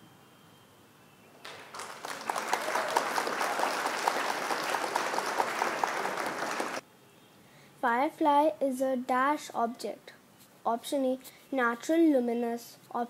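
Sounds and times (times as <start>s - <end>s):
dense applause: 1.4s - 6.8s.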